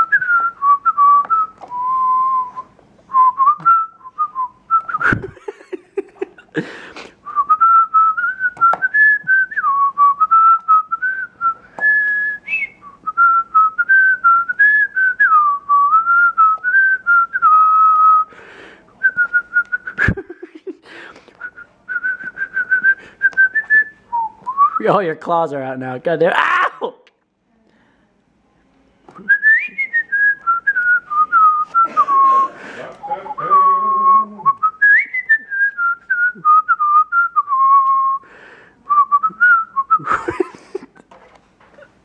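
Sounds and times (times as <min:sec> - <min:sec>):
person whistling a tune: 0:00.0 - 0:05.3, 0:07.2 - 0:18.3, 0:19.0 - 0:20.4, 0:21.4 - 0:24.9, 0:29.2 - 0:38.2, 0:38.8 - 0:40.5.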